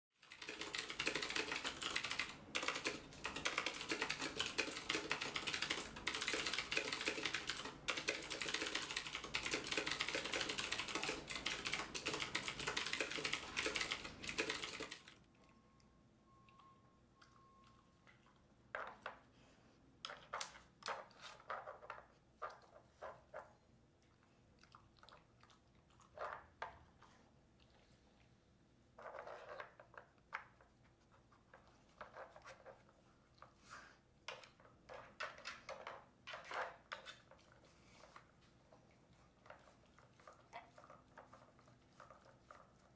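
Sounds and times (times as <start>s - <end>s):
keyboard clicks: 0.2s - 15.2s
typing on mechanical keyboard: 0.2s - 15.2s.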